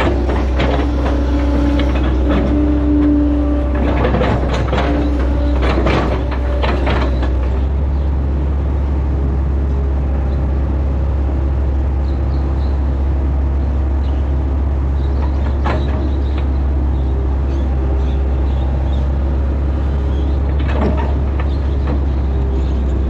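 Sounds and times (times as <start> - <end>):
irregular clatter: 0.0 - 7.7, 15.1 - 16.6, 20.1 - 22.8
excavator diesel engine humming: 0.0 - 23.0.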